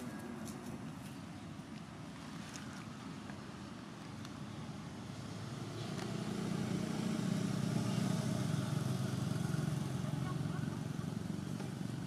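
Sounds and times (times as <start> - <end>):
vehicle engine approaching: 4.4 - 12.0.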